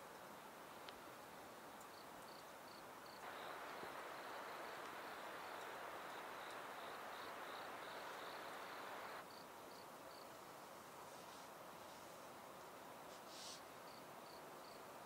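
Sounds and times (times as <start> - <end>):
steady hiss: 0.0 - 15.0
crickets chirping: 1.9 - 10.5, 13.3 - 14.9.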